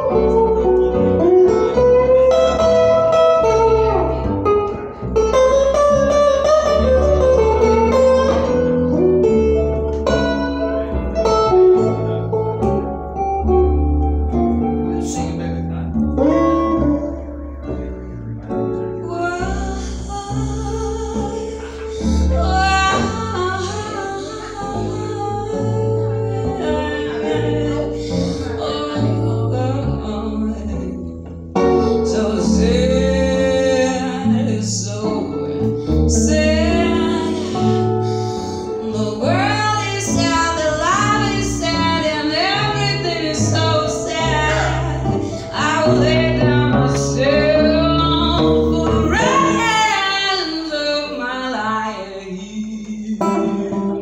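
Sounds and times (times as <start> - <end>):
slow blues on acoustic guitar: 0.0 - 54.0
woman singing: 18.8 - 54.0.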